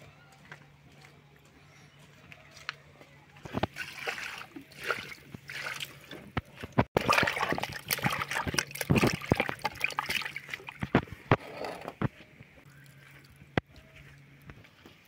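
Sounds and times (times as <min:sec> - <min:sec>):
hands washing meat in water: 0:03.6 - 0:11.2
water trickling from a jug: 0:03.6 - 0:11.4.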